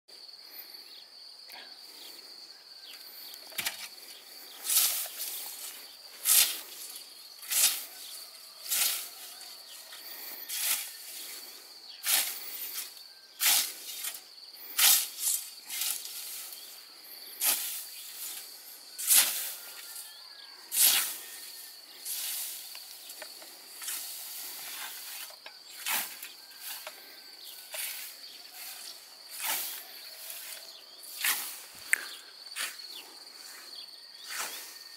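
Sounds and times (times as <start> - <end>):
scythe swishing through grass: 4.6 - 9.8, 10.5 - 11.3, 12.0 - 16.8, 17.4 - 19.8, 20.7 - 21.4, 22.0 - 31.7.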